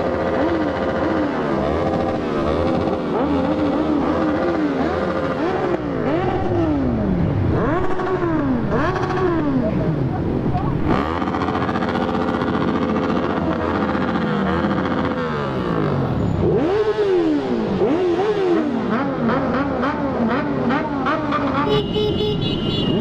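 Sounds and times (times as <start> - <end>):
motorcycle engines revving: 0.0 - 23.0.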